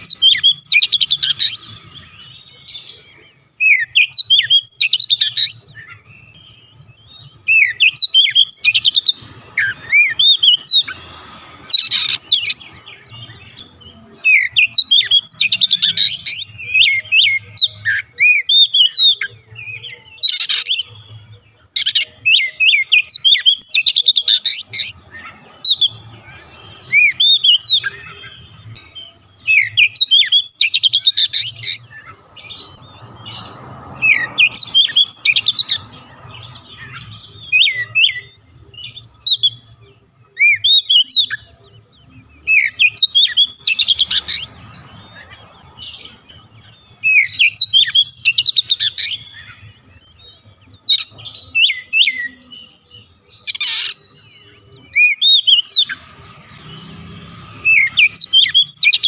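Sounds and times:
bird singing whistled phrases: 7.4 - 11.0, 54.8 - 56.0.

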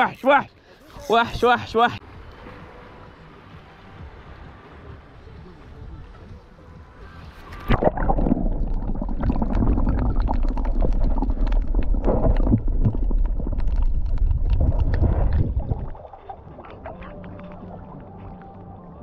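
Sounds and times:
muffled underwater rumble and gurgling: 5.1 - 19.0
sharp underwater clicks and crackles: 7.4 - 18.7.

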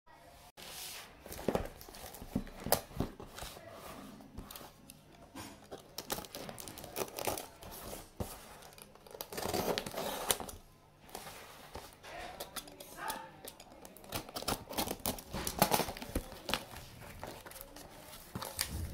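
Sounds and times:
cardboard crinkling: 1.0 - 18.9
tape tearing: 5.7 - 7.7, 8.6 - 10.6
box cutter slicing tape: 9.3 - 10.5.

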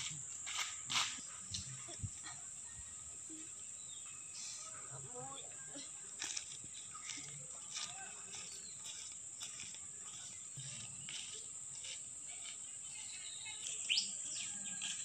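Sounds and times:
bird whistled calls: 13.8 - 14.2.

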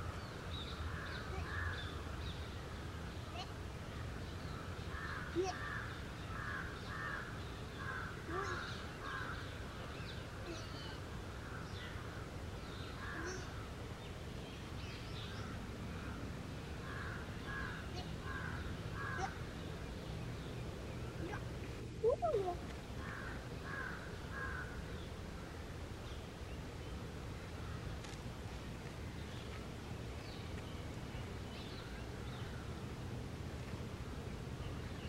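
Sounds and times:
crow cawing: 23.0 - 24.8.

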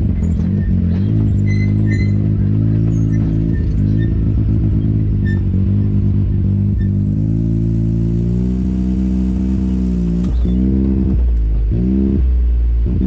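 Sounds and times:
knocks and rattles: 0.0 - 6.2
atv engine running: 0.0 - 13.0.

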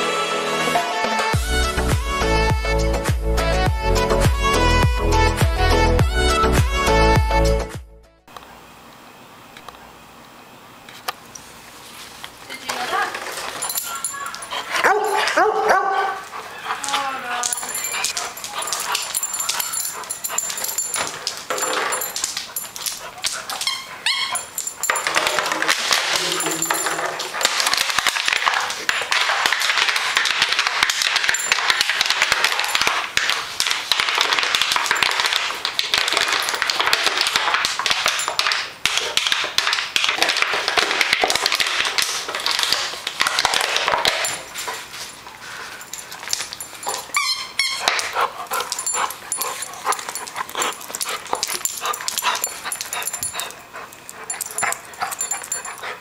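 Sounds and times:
dog chewing plastic bottle: 27.1 - 44.5.

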